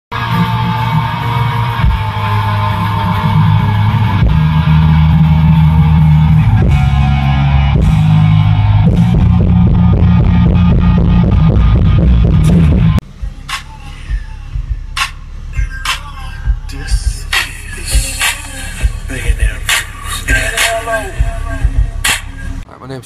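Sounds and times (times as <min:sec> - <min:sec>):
rock music with electric guitar: 0:00.1 - 0:13.8
steady drum beat: 0:00.2 - 0:22.6.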